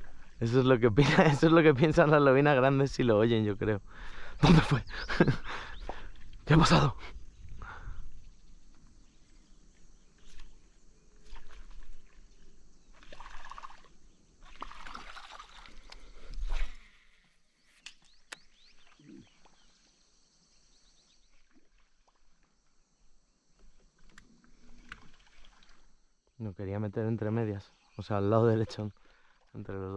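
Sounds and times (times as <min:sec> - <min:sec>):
water splashing and sloshing: 0:00.0 - 0:02.2, 0:04.4 - 0:17.4, 0:21.1 - 0:26.2.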